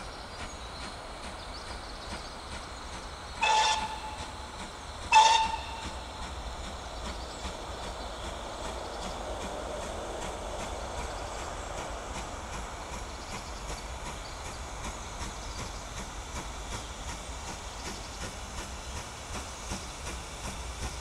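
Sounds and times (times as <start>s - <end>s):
approaching train: 0.0s - 21.0s
steam locomotive whistle blasts: 3.4s - 4.3s, 5.1s - 6.1s.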